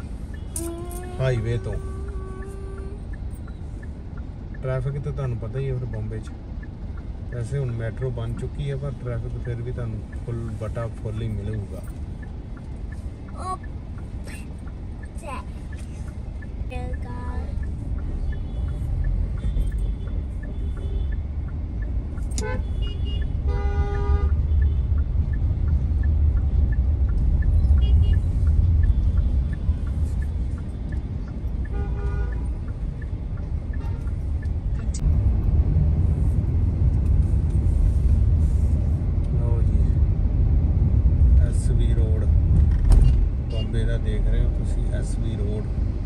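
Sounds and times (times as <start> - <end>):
road and engine rumble: 0.0 - 46.0
vehicle horns honking: 0.4 - 2.8, 22.4 - 24.9, 31.7 - 32.5.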